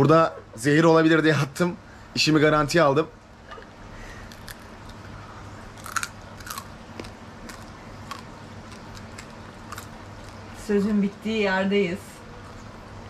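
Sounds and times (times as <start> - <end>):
person chewing crunchy food: 4.2 - 10.6.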